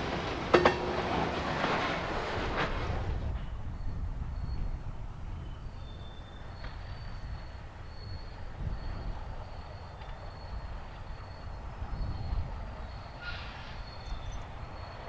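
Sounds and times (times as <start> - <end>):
freight train rumbling on rails: 0.0 - 15.0
faint high-pitched squeals: 5.4 - 15.0.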